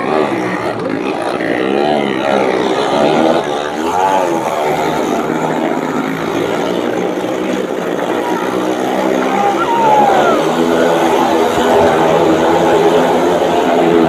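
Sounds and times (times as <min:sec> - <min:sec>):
motorcycle engine running: 0:00.0 - 0:09.8.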